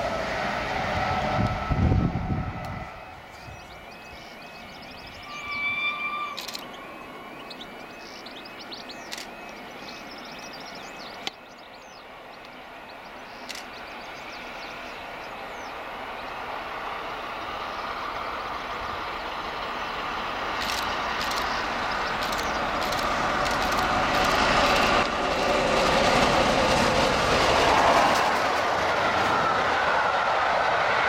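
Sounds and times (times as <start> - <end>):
steam train approaching: 0.0 - 31.0
steam whistle: 5.2 - 6.5.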